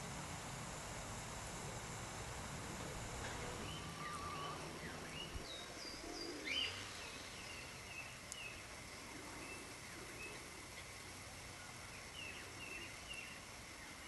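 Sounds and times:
faint outdoor hiss: 0:00.0 - 0:14.0
birds chirping and whistling: 0:03.6 - 0:08.6.

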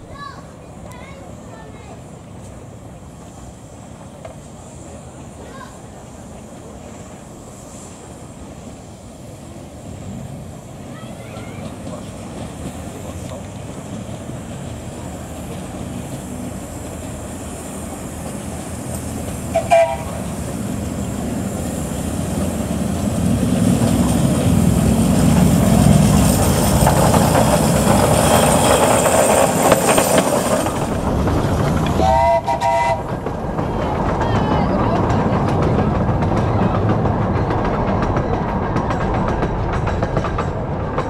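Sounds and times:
train wheels on rail: 0:00.0 - 0:41.0
steam train whistle toot: 0:19.5 - 0:20.2, 0:32.0 - 0:33.1.

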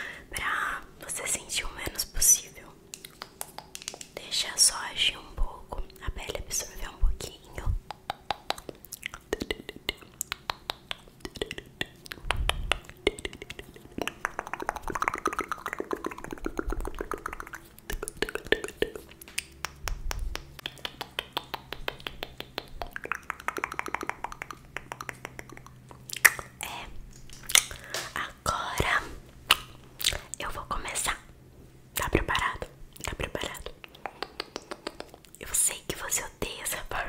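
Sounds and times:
soft hiss: 0:00.0 - 0:13.9, 0:24.7 - 0:37.0
wet mouth clicks and smacks: 0:02.9 - 0:04.2, 0:07.8 - 0:28.3, 0:29.5 - 0:30.5, 0:32.0 - 0:36.7.

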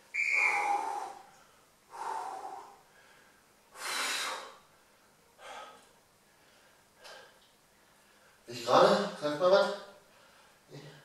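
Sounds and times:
man breathing hard: 0:00.4 - 0:04.6, 0:05.4 - 0:08.4.

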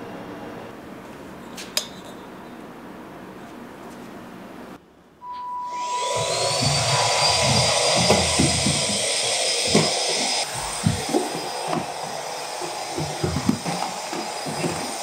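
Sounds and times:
handheld vacuum cleaner motor: 0:05.7 - 0:15.0
nozzle knocking on wooden floor: 0:06.2 - 0:15.0.

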